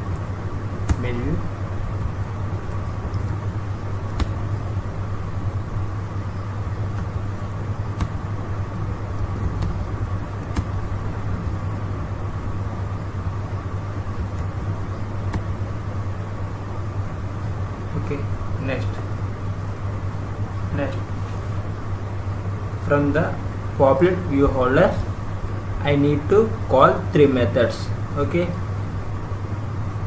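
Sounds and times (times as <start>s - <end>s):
room hum and hiss: 0.0s - 30.0s
keyboard and mouse clicks: 7.9s - 8.2s, 9.4s - 9.8s, 10.4s - 10.8s, 15.3s - 15.5s.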